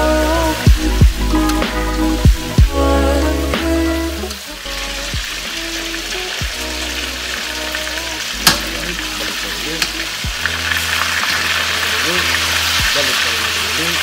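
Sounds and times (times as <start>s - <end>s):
meat sizzling in hot oil: 0.0s - 14.0s
metal tongs stirring in wok: 8.3s - 14.0s.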